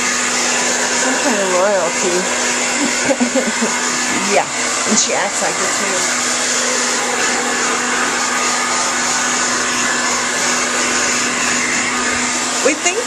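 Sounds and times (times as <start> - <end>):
hair dryer running: 0.0 - 13.0.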